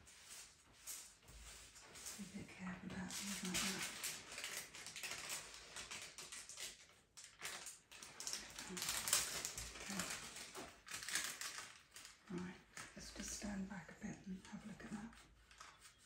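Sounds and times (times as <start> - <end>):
pastel scratching on paper: 14.4 - 16.0.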